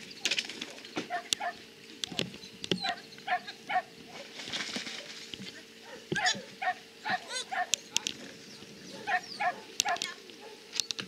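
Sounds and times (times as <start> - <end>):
steady hum: 0.0 - 11.0
dog barking: 1.1 - 1.6, 2.8 - 4.2, 5.8 - 8.1, 8.9 - 10.7.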